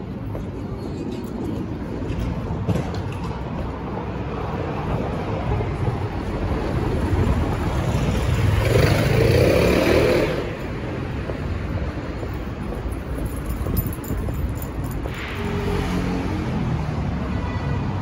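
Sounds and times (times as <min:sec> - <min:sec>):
city street traffic: 0:00.0 - 0:18.0.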